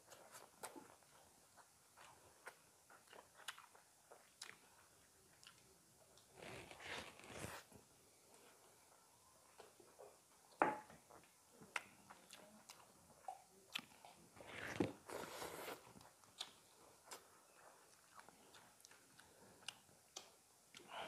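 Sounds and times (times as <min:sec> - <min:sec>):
chewing and mouth noises: 0:00.1 - 0:05.7, 0:11.1 - 0:21.0.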